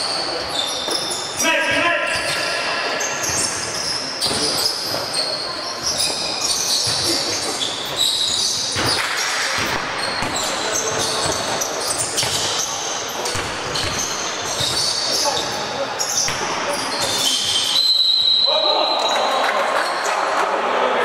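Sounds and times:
sneakers squeaking on floor: 0:00.0 - 0:20.4
players' voices: 0:00.0 - 0:21.0
basketball bouncing: 0:08.8 - 0:15.6.

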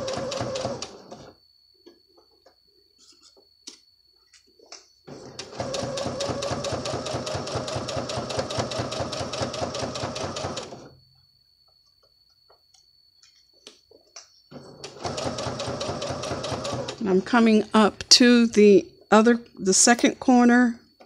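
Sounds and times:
sewing machine stitching: 0:00.0 - 0:01.3, 0:05.1 - 0:10.9, 0:14.6 - 0:17.2.

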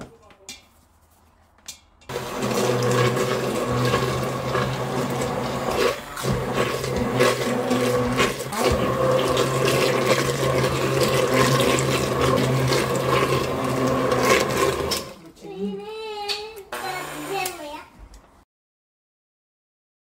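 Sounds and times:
immersion blender motor hum: 0:02.1 - 0:15.2, 0:16.7 - 0:17.6
soup churning: 0:02.1 - 0:15.2.

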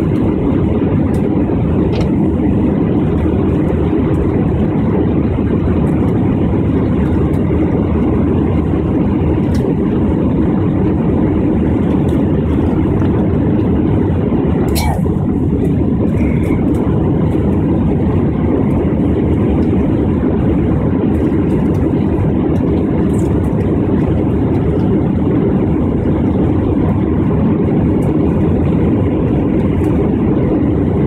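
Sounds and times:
jet engines rumbling: 0:00.0 - 0:31.0
rushing air: 0:11.5 - 0:19.3.

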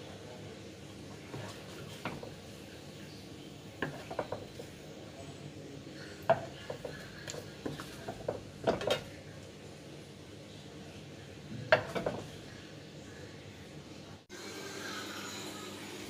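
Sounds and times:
spatula scraping frying pan: 0:03.8 - 0:04.8.

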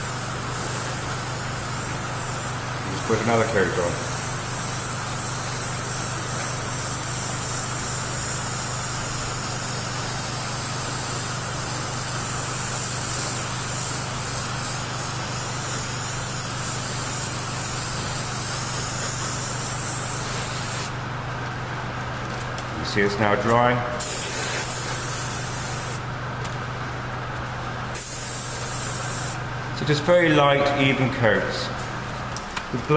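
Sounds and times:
airbrush spray hiss: 0:00.0 - 0:20.9, 0:24.0 - 0:26.0, 0:27.9 - 0:29.4.

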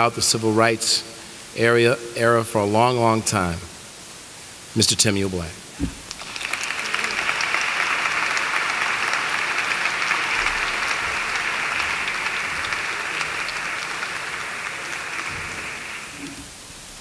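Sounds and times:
audience applauding: 0:06.1 - 0:16.4.

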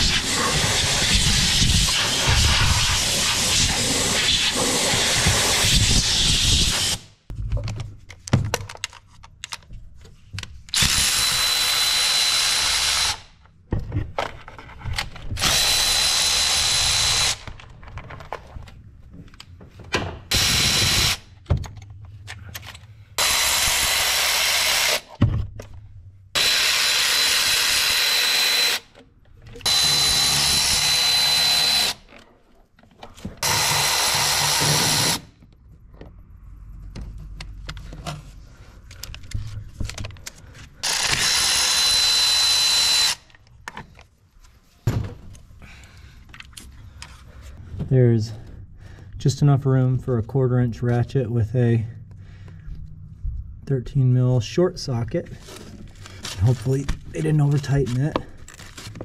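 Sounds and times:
electric ratchet motor whining: 0:15.4 - 0:17.5, 0:26.4 - 0:28.9, 0:29.6 - 0:32.1, 0:40.8 - 0:43.3.

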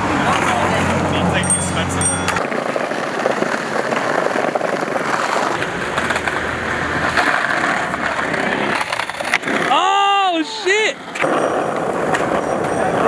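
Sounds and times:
skateboard wheels rolling on paving: 0:00.0 - 0:13.0.

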